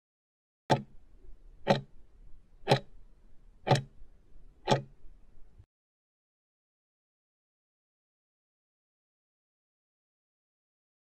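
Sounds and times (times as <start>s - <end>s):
clock-like timer ticks: 0.7s - 1.0s, 1.6s - 2.0s, 2.6s - 3.0s, 3.6s - 4.0s, 4.6s - 5.0s.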